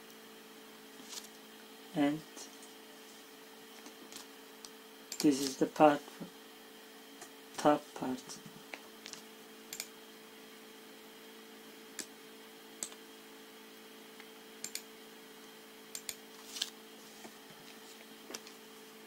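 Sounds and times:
faint steady hum: 0.0 - 19.0
computer mouse clicking: 9.7 - 9.9, 12.8 - 13.0, 14.6 - 14.9, 16.0 - 16.2.

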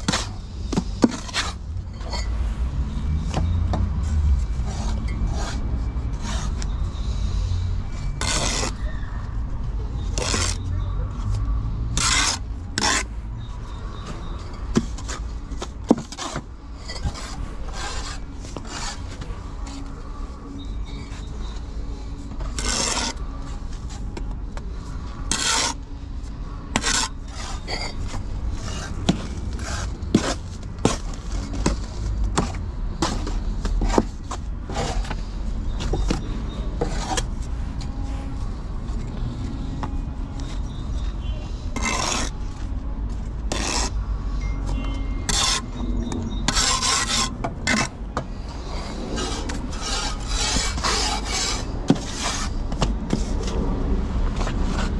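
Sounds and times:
trowel scraping mortar: 0.0 - 2.4, 8.1 - 8.9, 10.0 - 10.7, 11.9 - 13.1, 14.7 - 19.9, 22.4 - 23.3, 25.3 - 25.8, 26.7 - 37.3, 41.7 - 42.7, 43.3 - 44.0, 45.2 - 53.6.

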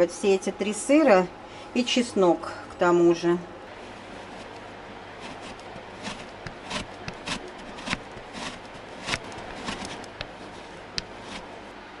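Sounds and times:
cheese grating on metal grater: 5.2 - 11.6.

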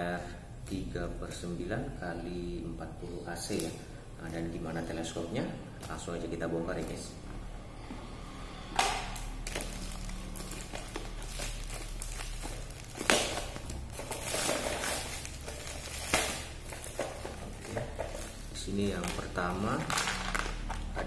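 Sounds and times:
plastic wrapping crinkling: 9.0 - 21.0.

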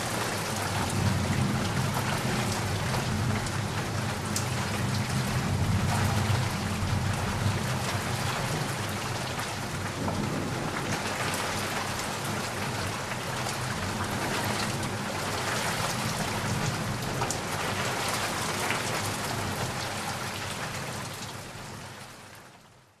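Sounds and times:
heavy rain falling: 0.0 - 22.7
low thunder rumble: 0.4 - 17.6.

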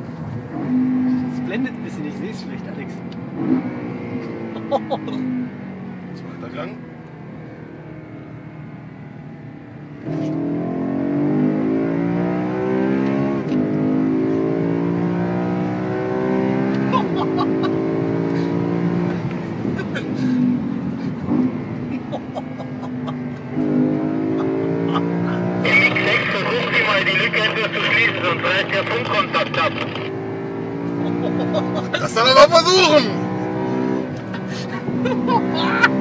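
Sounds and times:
car engine accelerating from cabin: 0.0 - 36.0.

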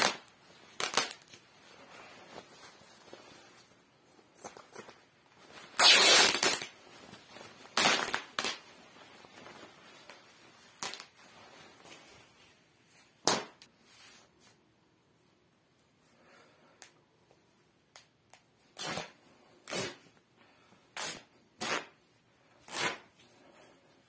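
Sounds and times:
fabric ripping: 0.0 - 1.4, 5.7 - 6.8, 7.6 - 8.7, 18.8 - 20.0, 21.0 - 22.0, 22.6 - 23.1
cloth rustling: 0.0 - 14.6.

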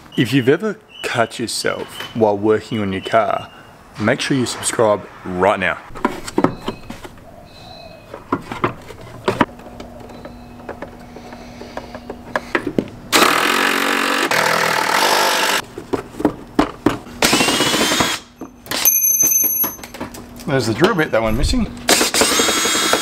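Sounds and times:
plastic parts clicking and knocking: 8.1 - 12.9.

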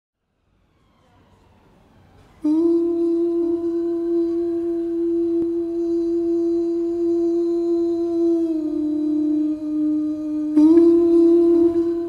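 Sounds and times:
man humming a steady note: 2.4 - 12.0.

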